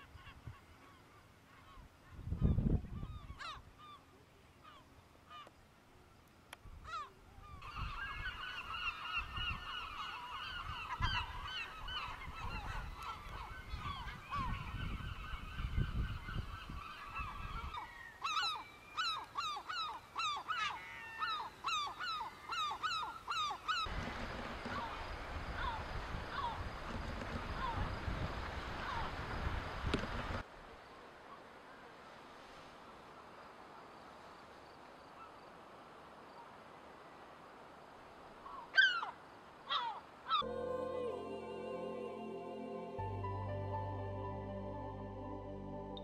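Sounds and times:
faint steady hiss: 0.0 - 46.0
gulls calling: 6.8 - 28.0, 28.7 - 29.2.

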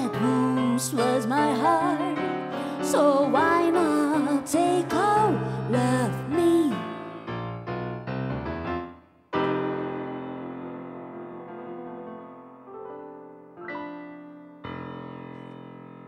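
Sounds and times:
woman singing: 0.0 - 7.2
piano chords: 0.0 - 16.0.

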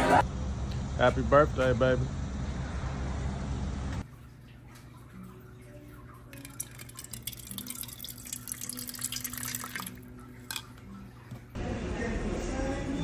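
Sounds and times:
tap water filling a glass: 6.0 - 11.4.

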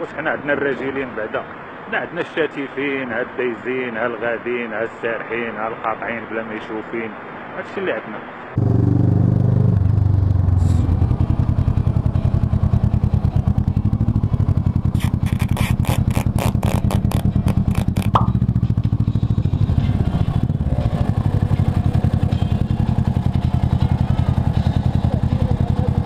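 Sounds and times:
motorcycle engine running at low revs: 8.6 - 26.0
short squeak: 14.9 - 18.2
sharp rattling knocks: 17.4 - 19.0.

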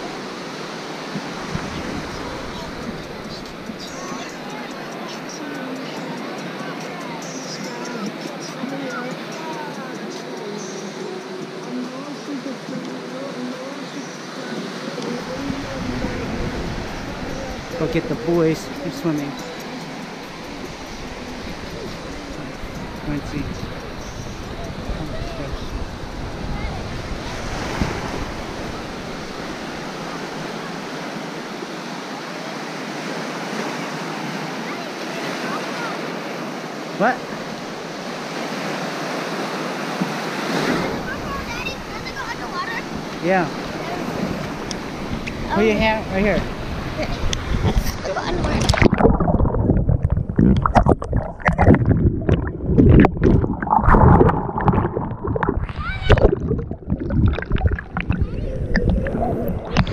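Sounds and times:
ocean waves washing on sand: 0.0 - 59.9
wind buffeting microphone: 15.2 - 18.8, 20.6 - 30.1, 40.8 - 59.9
muffled underwater surf rumble: 47.5 - 59.9
bubbling: 48.5 - 59.9.

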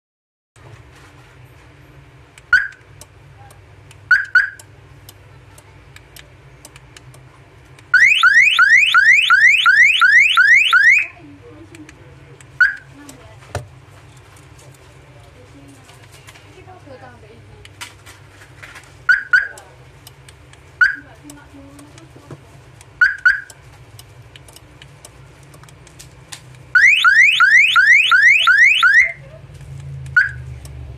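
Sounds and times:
car alarm chirps: 2.5 - 2.8, 4.1 - 4.7, 7.9 - 11.1, 12.6 - 12.8, 19.1 - 19.5, 20.8 - 21.0, 23.0 - 23.6, 26.8 - 29.2, 30.2 - 30.4
car alarm siren sweeping: 2.5 - 2.8, 4.1 - 4.6, 7.9 - 11.2, 19.1 - 19.5, 23.0 - 23.5, 26.8 - 29.2, 30.2 - 30.4.

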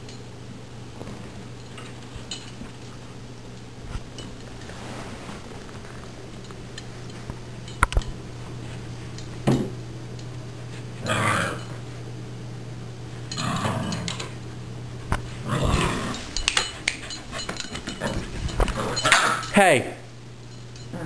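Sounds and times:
puppies play growling: 10.8 - 12.0, 13.3 - 14.4, 15.0 - 19.5.

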